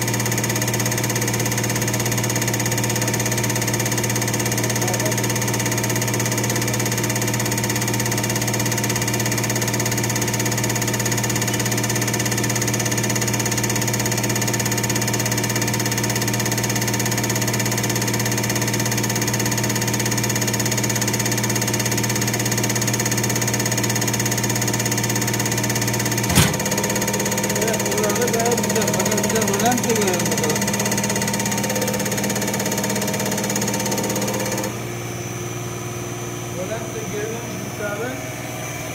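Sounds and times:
sharp click: 0:26.3 - 0:26.8.

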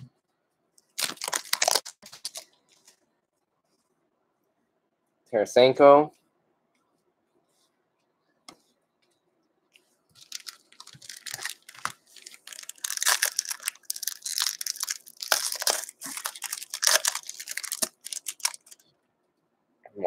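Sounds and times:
foil wrapper tearing and crinkling: 0:00.9 - 0:02.5, 0:10.2 - 0:18.8.

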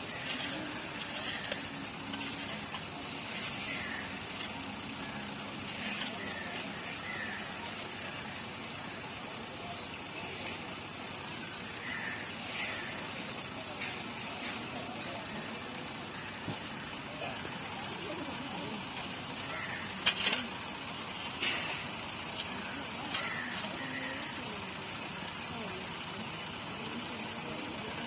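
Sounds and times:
shovel scraping dirt: 0:00.0 - 0:06.8, 0:18.9 - 0:23.8
faint distant voices: 0:00.0 - 0:28.0.

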